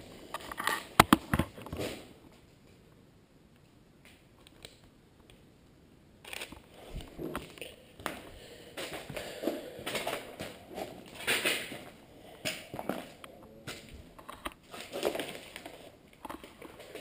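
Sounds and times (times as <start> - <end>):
footsteps crunching over paper: 7.1 - 17.0.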